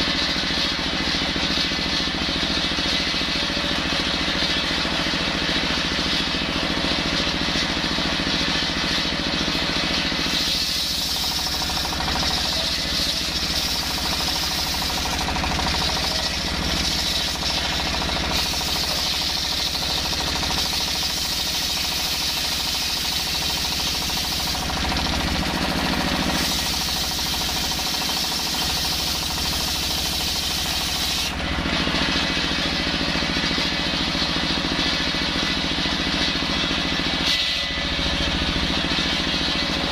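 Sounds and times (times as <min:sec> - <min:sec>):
diesel engine running: 0:00.0 - 0:39.9
circular saw ripping wood: 0:10.1 - 0:31.4.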